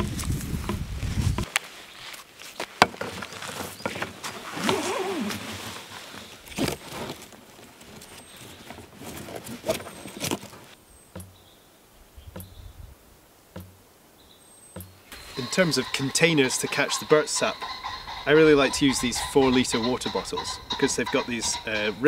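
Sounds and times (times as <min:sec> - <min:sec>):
cord rubbing on bark: 0:03.2 - 0:07.3.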